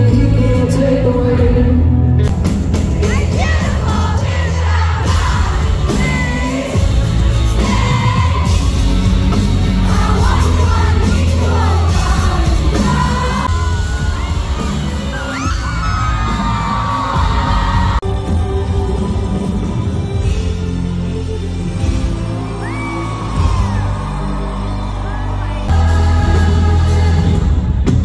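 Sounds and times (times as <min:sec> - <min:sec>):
loud amplified pop music: 0:00.0 - 0:28.0
audience whooping and screaming: 0:11.0 - 0:18.0, 0:22.0 - 0:26.5.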